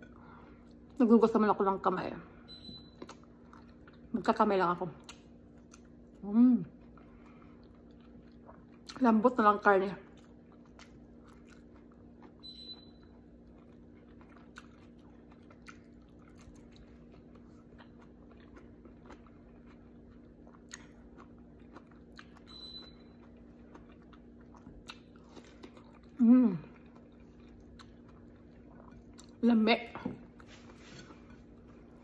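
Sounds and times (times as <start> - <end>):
steady low hum: 0.0 - 32.0
quiet chewing: 3.0 - 4.2, 5.0 - 9.0, 10.0 - 29.4.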